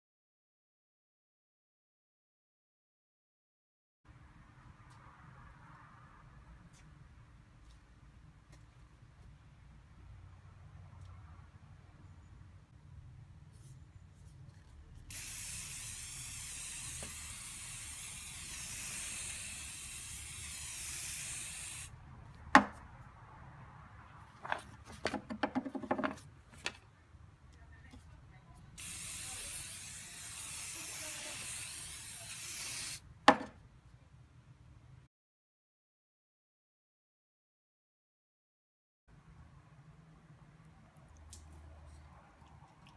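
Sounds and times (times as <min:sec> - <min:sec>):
aerosol can spraying: 0:15.1 - 0:22.0, 0:28.8 - 0:33.0.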